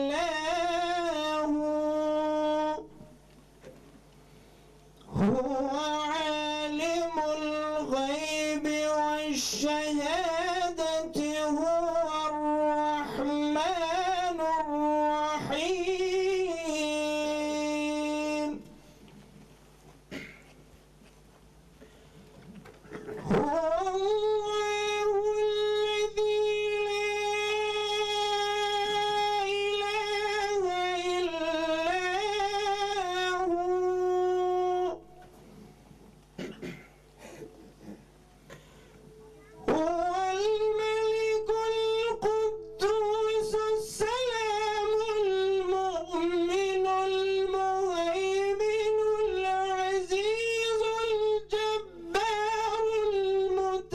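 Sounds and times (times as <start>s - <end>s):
man chanting: 0.0s - 3.1s, 5.1s - 18.7s, 22.9s - 35.2s, 39.4s - 53.9s
man reciting melodically: 0.0s - 3.2s, 4.9s - 18.9s, 22.8s - 35.4s, 39.4s - 53.9s
faint background sounds: 35.7s - 40.0s.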